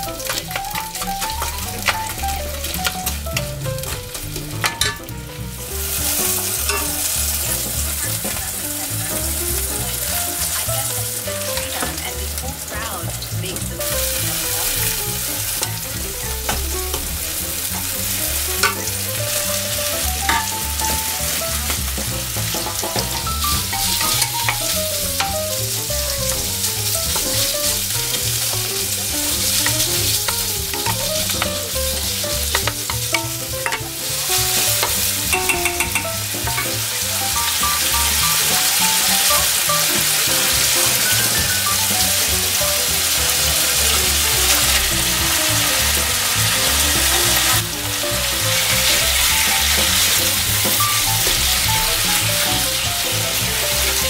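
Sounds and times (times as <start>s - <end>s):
meat sizzling in a frying pan: 0.0s - 54.0s.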